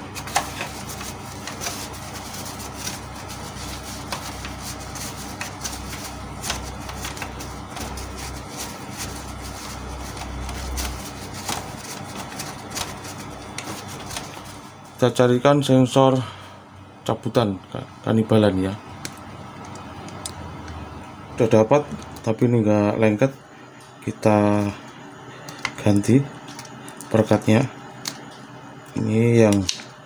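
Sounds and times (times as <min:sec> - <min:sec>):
hands rubbing plastic parts: 0:00.0 - 0:14.8.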